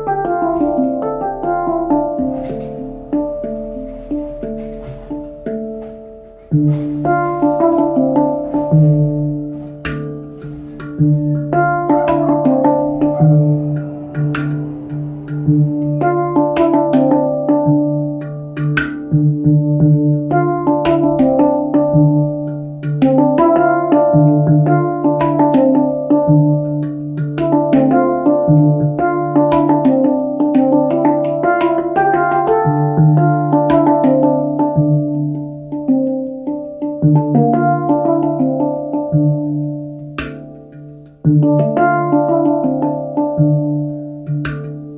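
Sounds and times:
low ringing note: 0.0 - 5.4, 11.0 - 18.1
handpan melody: 0.0 - 44.9.

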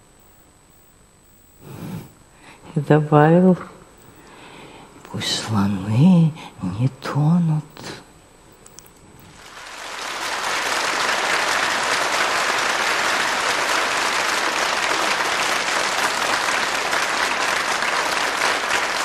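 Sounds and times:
audience applauding: 9.3 - 19.0.

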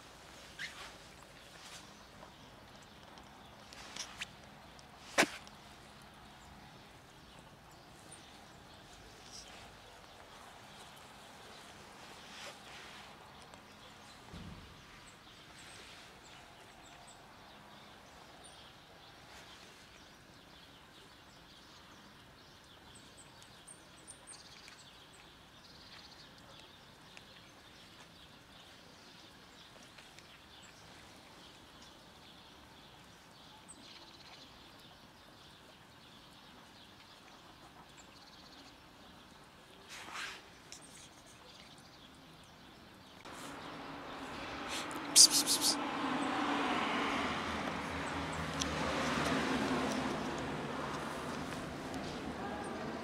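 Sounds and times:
faint high bird chirps: 44.9 - 45.8.

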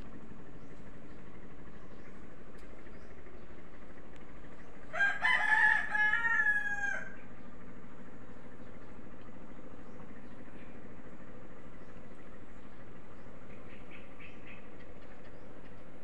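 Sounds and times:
rooster crowing: 4.9 - 7.3.

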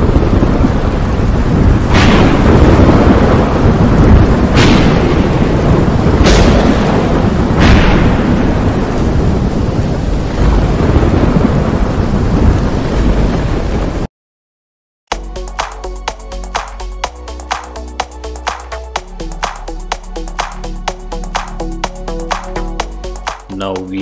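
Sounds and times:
heavy rain: 0.0 - 14.1, 15.1 - 24.0
sharp thunder cracks: 0.0 - 14.1
thunder rumbling: 0.0 - 14.1.

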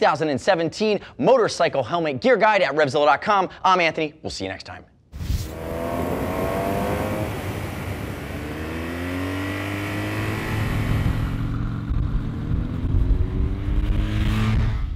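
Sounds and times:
heavier engine rumble: 5.2 - 14.9
motorcycle engine accelerating: 5.2 - 14.9.

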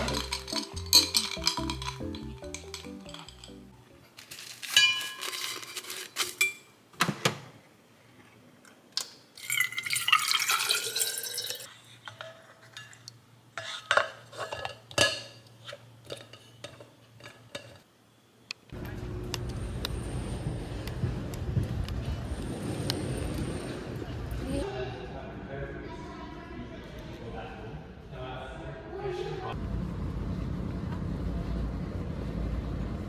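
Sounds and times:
glassware clinking: 0.0 - 3.8, 4.7 - 5.5, 9.4 - 11.7
handling knocks and clicks: 0.0 - 3.8
water pouring into bottle: 9.4 - 11.7
wind: 17.5 - 24.7
traffic: 18.8 - 24.6, 29.5 - 33.0.

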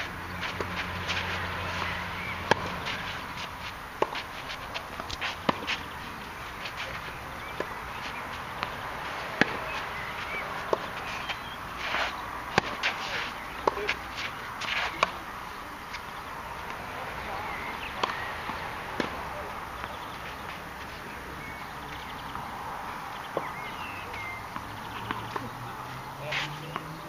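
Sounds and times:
racket hitting tennis ball: 0.0 - 15.2, 15.9 - 20.8
shoes scuffing on clay: 0.0 - 15.2.

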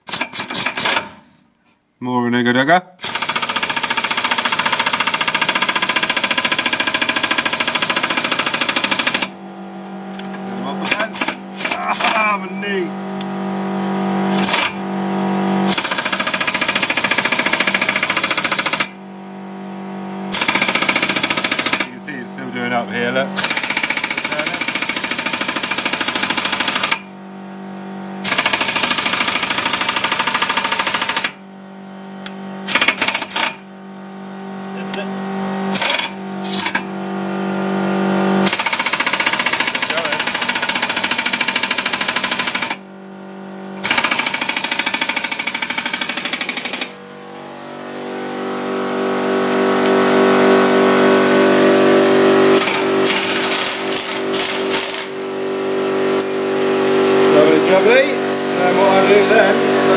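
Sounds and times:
impact wrench hammering: 0.0 - 1.3, 3.0 - 9.4, 10.2 - 12.4, 14.3 - 14.8, 15.7 - 19.0, 20.3 - 21.9, 23.4 - 27.1, 28.2 - 31.4, 32.7 - 33.6, 35.7 - 36.9, 38.5 - 42.8, 43.8 - 47.0, 52.5 - 55.3, 56.1 - 57.2, 58.2 - 58.8
steady hum: 7.9 - 15.8.

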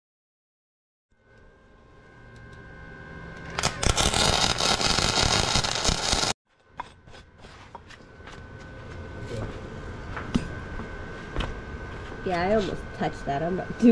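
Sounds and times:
welding arc crackling: 3.4 - 6.4.

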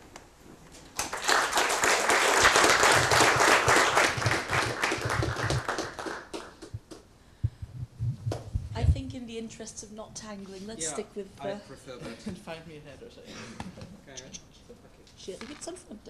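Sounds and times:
audience applauding: 0.9 - 7.1.

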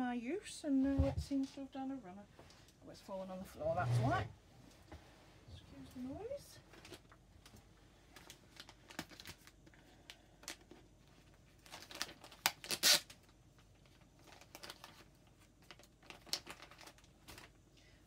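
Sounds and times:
plastic packet rustling: 8.1 - 9.8, 10.4 - 17.6.

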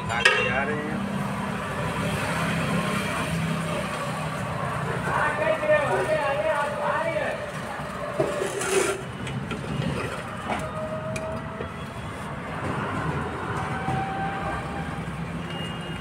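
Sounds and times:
metal scrape: 8.2 - 9.2.

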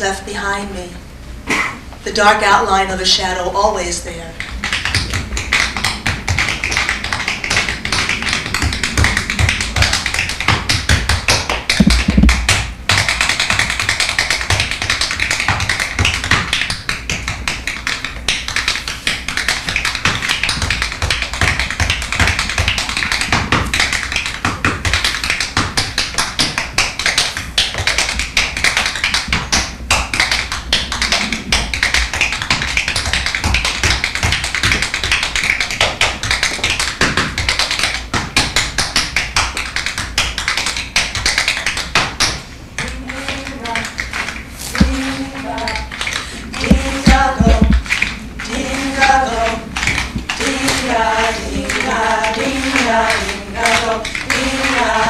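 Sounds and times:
heavy foot stamp: 8.6 - 13.7, 44.6 - 45.2, 46.6 - 48.0
tap shoes on wooden floor: 10.5 - 13.7, 44.6 - 45.0, 46.7 - 47.9.

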